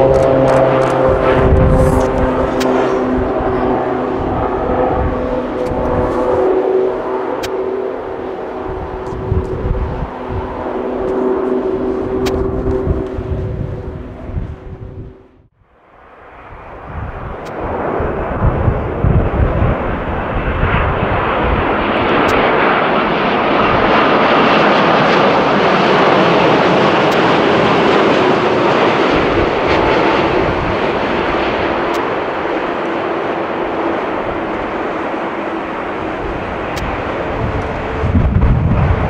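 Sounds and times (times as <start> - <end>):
faint whine dropping in pitch: 0.0 - 19.2
airliner engines roaring: 0.0 - 39.0.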